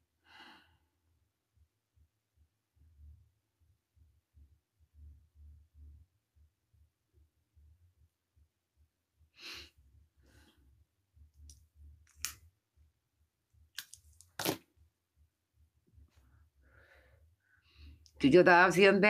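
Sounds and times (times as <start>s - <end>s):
faint low hum: 0.4s - 14.2s.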